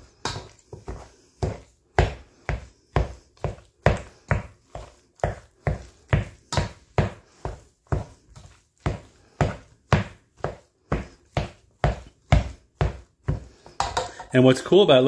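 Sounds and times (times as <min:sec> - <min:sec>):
potato masher thudding in pot: 0:13.7 - 0:14.3.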